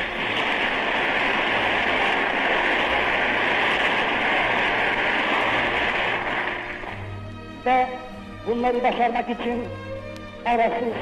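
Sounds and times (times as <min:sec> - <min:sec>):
loud rushing noise: 0:00.0 - 0:07.2.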